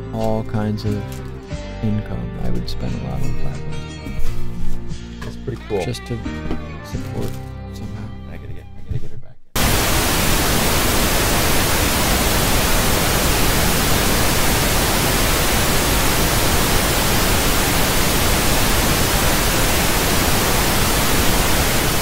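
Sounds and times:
tv static hiss: 0:09.6 - 0:22.0.

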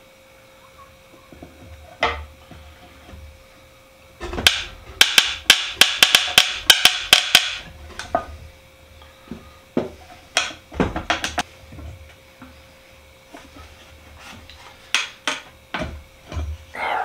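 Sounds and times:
metal tool tapping on wood: 0:04.4 - 0:07.7.

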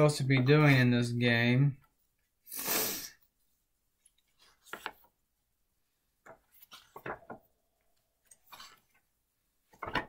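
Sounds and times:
game cards and pieces rustling: 0:04.0 - 0:05.2, 0:06.1 - 0:10.0.

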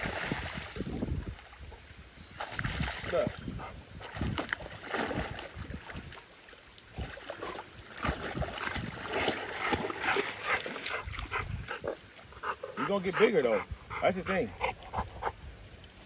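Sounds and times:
dog splashing in water: 0:04.0 - 0:06.2, 0:06.9 - 0:13.5.

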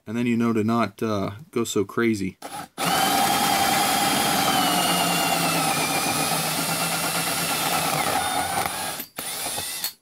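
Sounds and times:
drill motor whine: 0:02.4 - 0:10.0
hole saw cutting plastic: 0:02.4 - 0:10.0.

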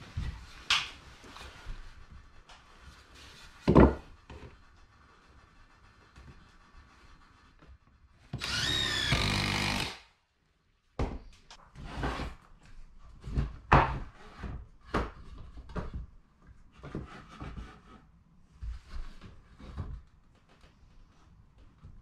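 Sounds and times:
cordless drill driving screw: 0:08.4 - 0:10.0.

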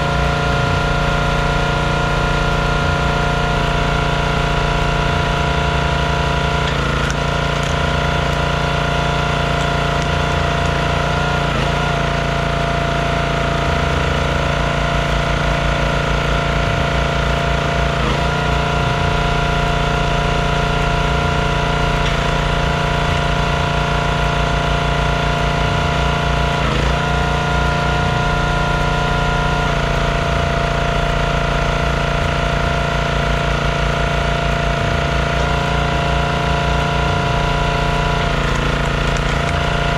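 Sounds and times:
log splitter engine running: 0:00.0 - 0:39.9.

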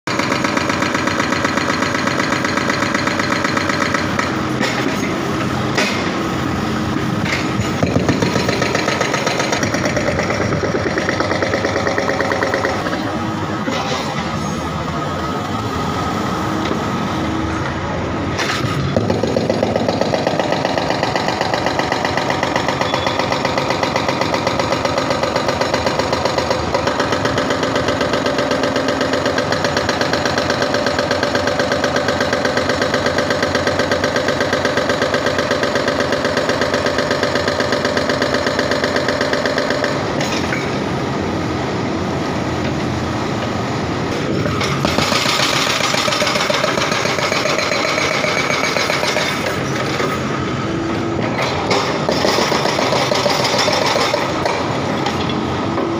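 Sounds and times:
diesel engine running: 0:00.1 - 0:55.9
hydraulic breaker hammering: 0:07.1 - 0:14.4, 0:18.4 - 0:40.9, 0:44.1 - 0:55.9.

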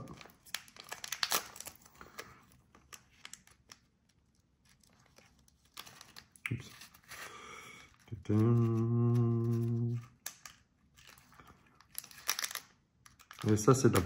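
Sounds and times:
packaging crinkling: 0:00.0 - 0:14.0.

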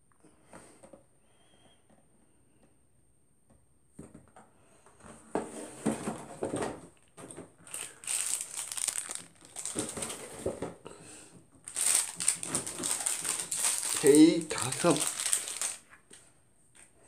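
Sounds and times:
snack packaging crinkling: 0:07.6 - 0:10.5, 0:11.6 - 0:16.0.

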